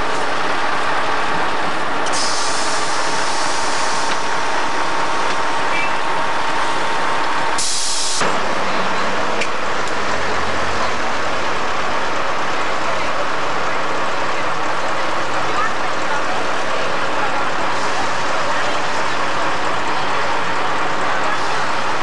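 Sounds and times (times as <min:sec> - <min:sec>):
traffic noise: 0:00.0 - 0:22.0.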